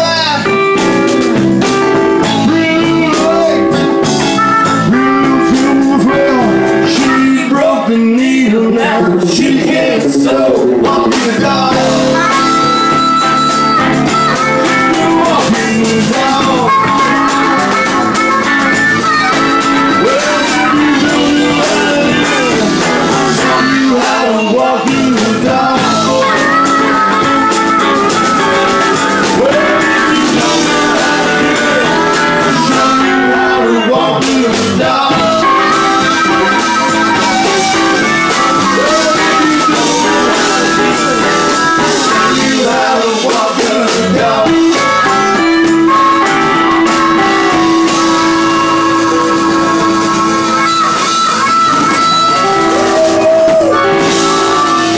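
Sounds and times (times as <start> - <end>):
bass: 0.0 - 54.9
drums: 0.0 - 54.9
electric guitar leads: 0.0 - 54.9
harmonica: 0.0 - 54.9
keyboards: 0.0 - 54.9.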